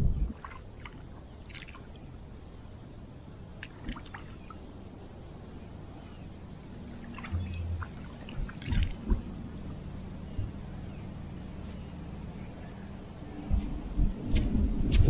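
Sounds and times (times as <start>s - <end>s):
low background rush: 0.0s - 15.0s
water splashing by hand: 0.3s - 2.1s, 3.6s - 4.6s, 7.0s - 9.4s
water dripping: 7.1s - 9.3s
low thumps: 7.2s - 9.4s.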